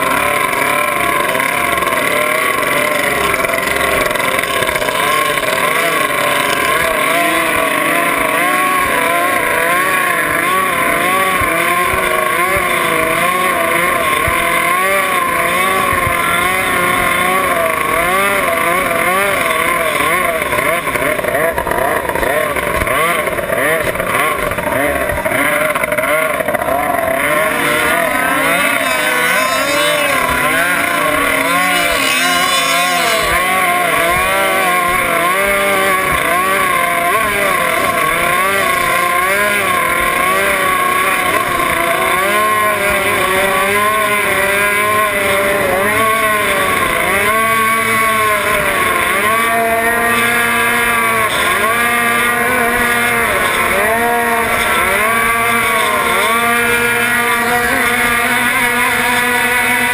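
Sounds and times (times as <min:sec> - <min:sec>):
outboard motor running: 0:00.0 - 0:59.9.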